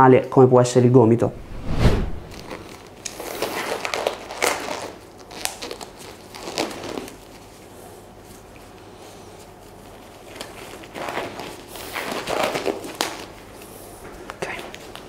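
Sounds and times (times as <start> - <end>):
rubber gloves rustling and stretching: 2.1 - 13.7.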